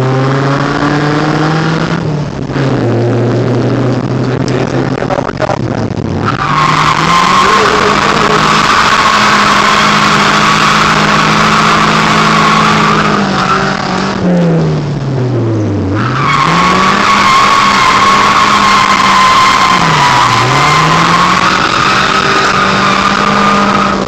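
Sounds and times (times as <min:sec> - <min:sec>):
car engine at high revs: 0:00.0 - 0:24.0
tyres squealing: 0:06.2 - 0:14.0.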